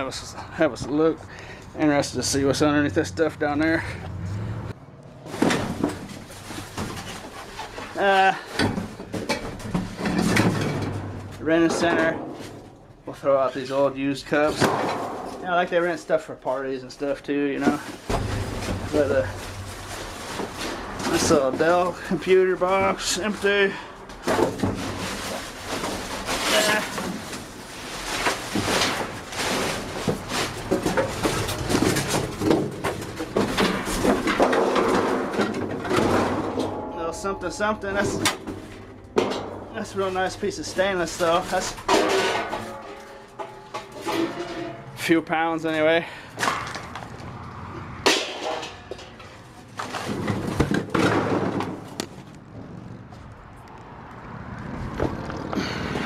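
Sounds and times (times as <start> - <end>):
trash and cardboard rustling: 5.2 - 16.4, 17.0 - 47.4, 48.0 - 52.5
knocks in metal dumpster: 8.6 - 12.7, 14.5 - 15.5, 17.7 - 21.8, 28.4 - 39.8, 41.5 - 45.0, 48.0 - 49.2, 50.0 - 52.0
plastic cups clattering: 17.6 - 44.9
plastic bags crinkling: 24.5 - 33.1.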